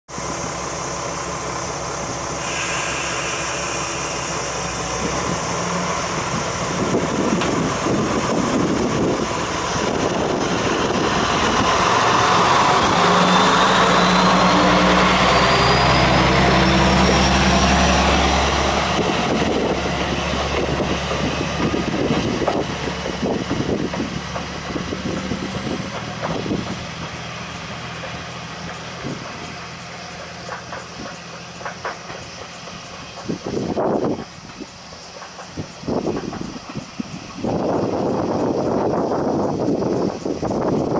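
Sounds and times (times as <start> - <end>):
diesel railcar engine whining: 0.1 - 40.9
wheels clicking over rail joints: 19.0 - 40.9.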